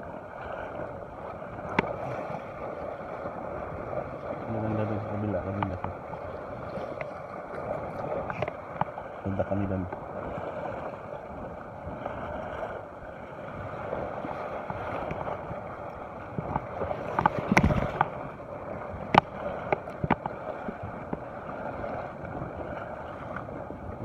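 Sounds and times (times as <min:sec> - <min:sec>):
sea washing against rocky shore: 0:00.0 - 0:24.0
microphone knocked and rubbed: 0:16.4 - 0:18.1.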